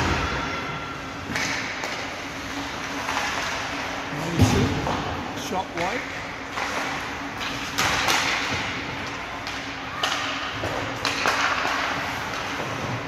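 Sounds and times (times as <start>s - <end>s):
sharp knocks of sticks and puck: 1.2s - 2.2s, 5.8s - 13.0s
skates scraping ice: 5.8s - 13.0s.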